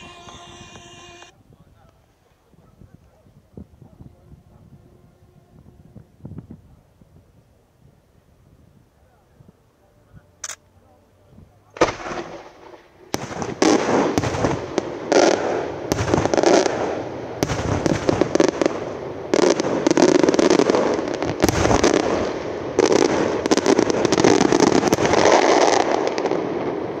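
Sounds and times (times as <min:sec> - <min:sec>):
fireworks bangs: 0:00.0 - 0:01.3, 0:11.8 - 0:27.0
fireworks crackling: 0:00.0 - 0:01.3, 0:11.8 - 0:27.0.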